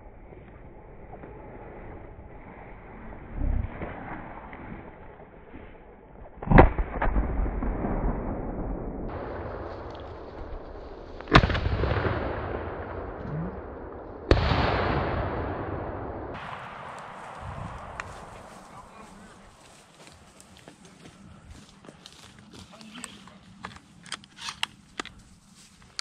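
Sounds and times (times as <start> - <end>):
shotgun shots: 9.1 - 19.0.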